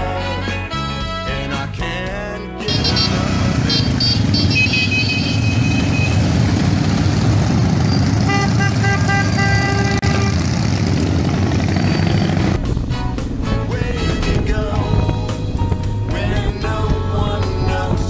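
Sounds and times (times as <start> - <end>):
motorcycles rumbling: 2.6 - 18.0
motorcycle horn toots: 2.7 - 6.6, 7.9 - 10.8.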